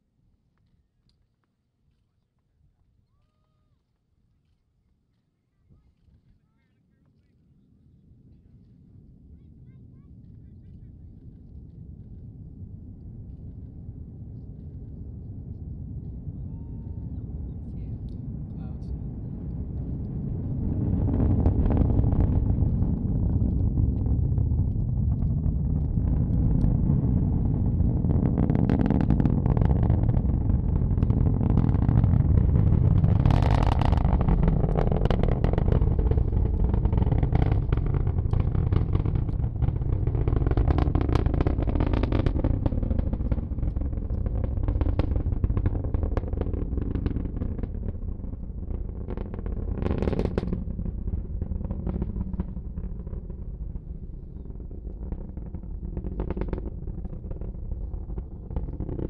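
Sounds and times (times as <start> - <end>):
rocket engines rumbling and crackling: 5.6 - 59.0.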